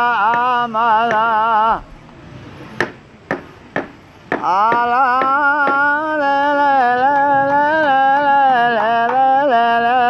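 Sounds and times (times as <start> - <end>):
person chanting a long note: 4.8 - 10.0.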